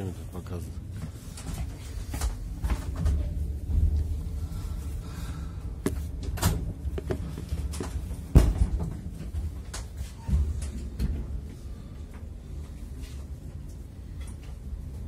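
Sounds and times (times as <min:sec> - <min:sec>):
train carriage rumbling: 0:00.0 - 0:15.0
knocks and rattles: 0:05.8 - 0:11.5.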